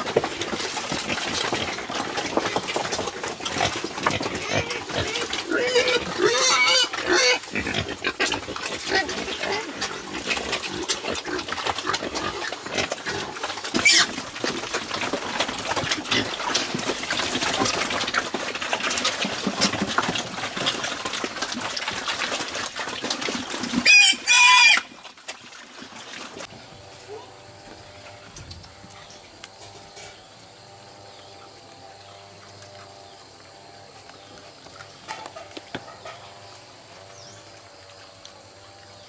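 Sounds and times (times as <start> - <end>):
pigs grunting: 0.0 - 24.9
pigs slurping and chomping: 0.0 - 29.6
pig squealing: 3.6 - 14.4, 23.7 - 25.0.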